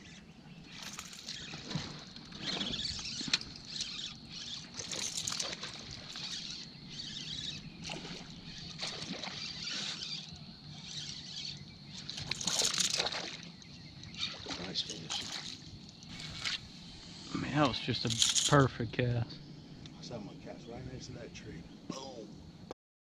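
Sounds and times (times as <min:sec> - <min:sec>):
lure splashing on water: 0:00.7 - 0:16.6.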